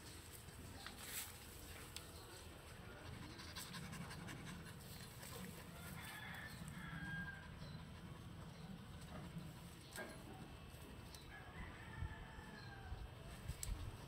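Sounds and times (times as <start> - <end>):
dog panting quietly: 2.6 - 5.9, 7.4 - 10.2.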